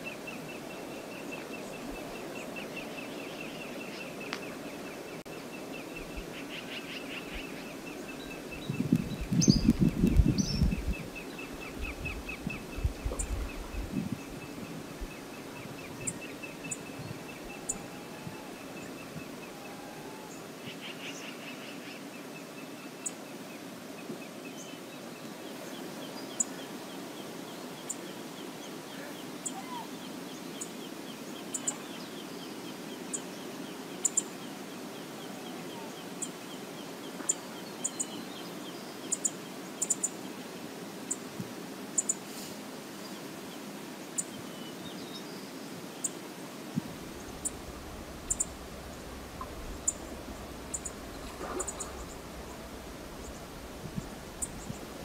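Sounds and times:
choppy lake water: 0.0s - 55.0s
wind rushing: 8.6s - 11.2s, 11.8s - 16.2s, 46.7s - 55.0s
faint bird calls: 28.9s - 30.0s, 47.0s - 55.0s.

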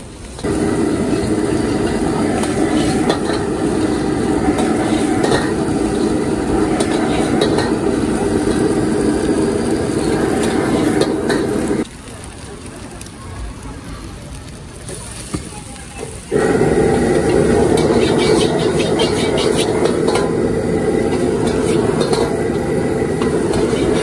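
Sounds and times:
gas wok burner roaring: 0.0s - 24.0s
steel ladle scraping a wok: 1.1s - 8.8s, 17.1s - 24.0s.

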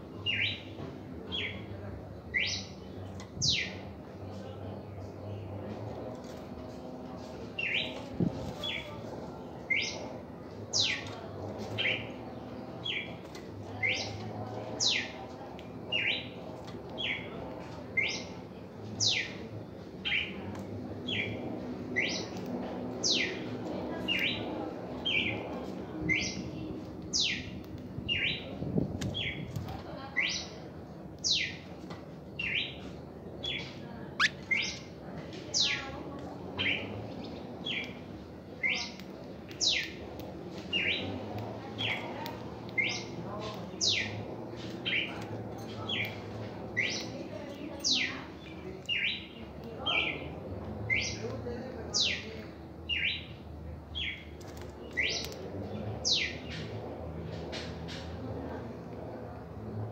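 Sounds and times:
bird whistling song: 34.2s - 34.8s.

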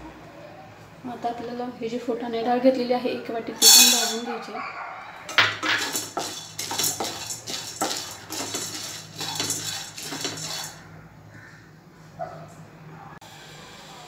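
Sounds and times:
grains rattling in pan: 3.6s - 4.2s, 5.3s - 10.8s.

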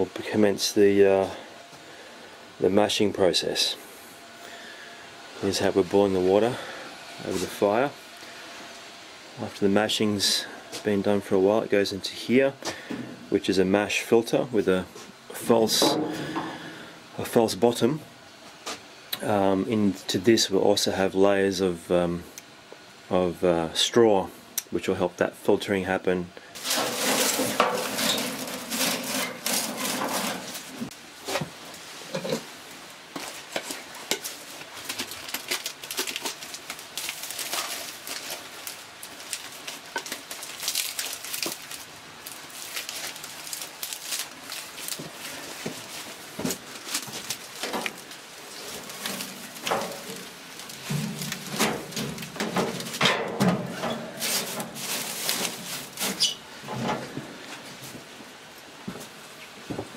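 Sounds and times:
dry straw rustling and crackling: 26.6s - 30.9s, 33.1s - 56.6s.

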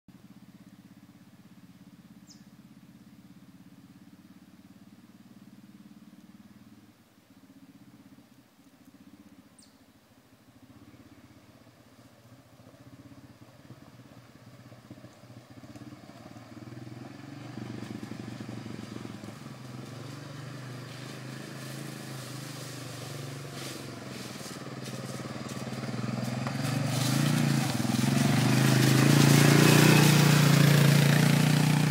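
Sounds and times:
quad bike engine approaching: 0.1s - 31.9s.

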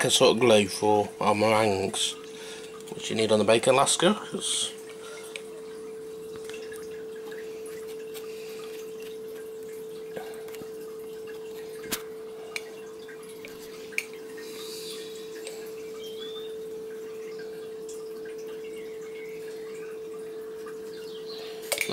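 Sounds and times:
steady humming tone: 0.0s - 21.9s.

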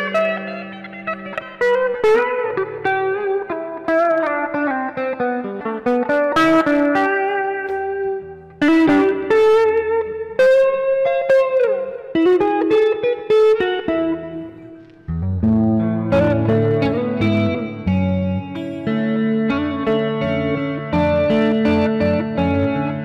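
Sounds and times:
electric guitar lead lines: 0.0s - 23.0s.

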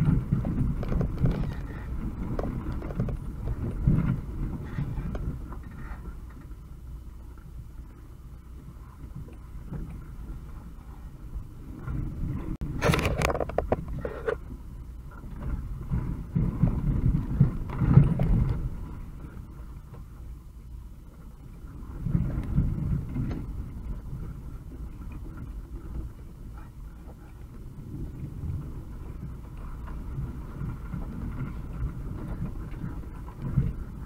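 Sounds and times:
knocks and body rattles: 0.0s - 6.7s, 11.8s - 14.5s, 15.1s - 20.1s
engine and drivetrain rumble: 0.0s - 34.0s.

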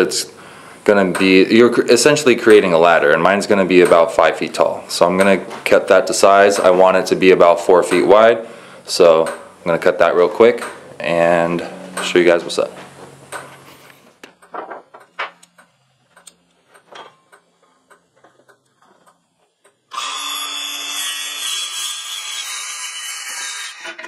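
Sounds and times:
circular saw cutting wood: 19.9s - 24.0s.

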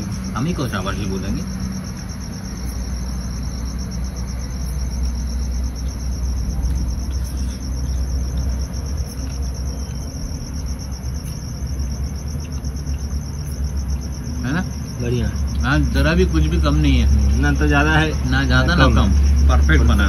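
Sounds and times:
crickets chirping: 0.0s - 20.0s
steady low rumble: 0.0s - 20.0s.

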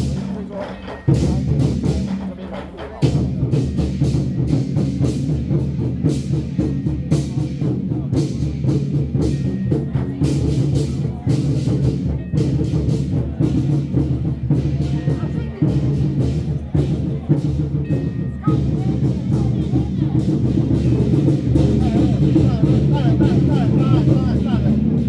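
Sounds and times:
clashing cymbals: 0.0s - 25.0s
drums: 0.0s - 25.0s.

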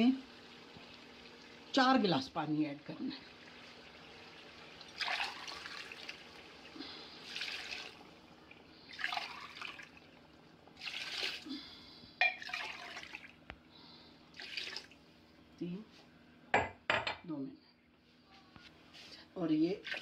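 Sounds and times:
water pouring and splashing: 3.4s - 11.5s, 12.4s - 13.4s, 14.3s - 15.0s, 19.8s - 20.0s.

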